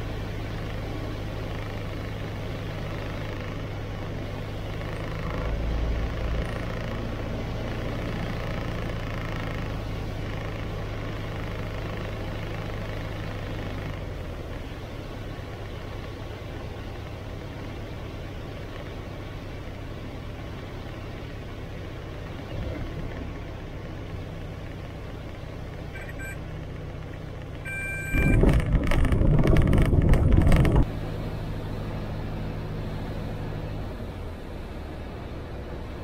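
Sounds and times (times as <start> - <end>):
light aircraft engine humming: 0.0 - 36.0
wheels rolling on grass runway: 15.4 - 31.0
short high beep: 26.0 - 26.4, 27.6 - 28.5.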